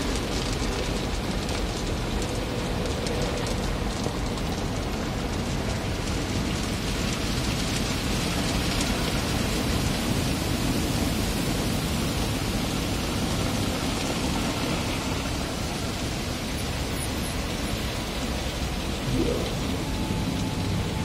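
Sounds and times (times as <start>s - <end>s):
water spraying on car: 0.0s - 21.0s
low rumble: 18.6s - 21.0s.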